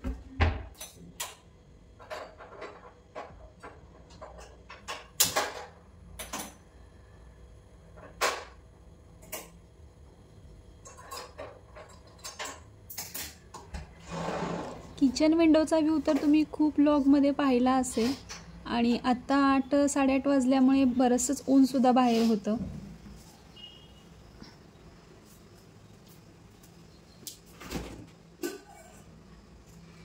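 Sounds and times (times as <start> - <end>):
kitchen utensils clattering: 10.8 - 13.4.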